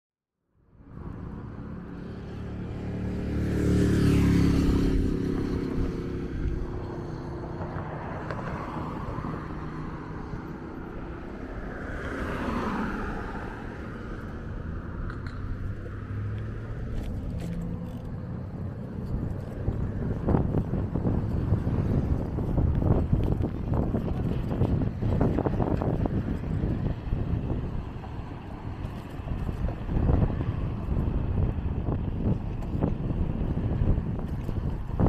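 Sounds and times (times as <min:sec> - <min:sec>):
traffic rumble: 0:00.5 - 0:35.0
car passing loudly: 0:00.8 - 0:19.0.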